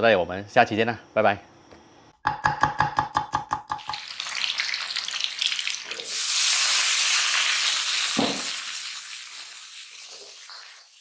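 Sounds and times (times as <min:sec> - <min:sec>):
food sizzling in hot pan: 0:03.8 - 0:11.0.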